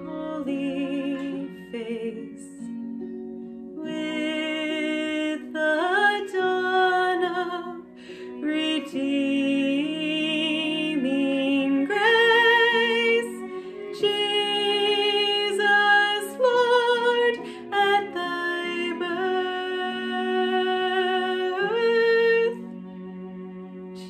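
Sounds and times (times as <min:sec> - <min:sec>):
woman singing a carol: 0:00.0 - 0:02.7, 0:03.8 - 0:22.6
soft instrumental accompaniment: 0:00.0 - 0:24.0.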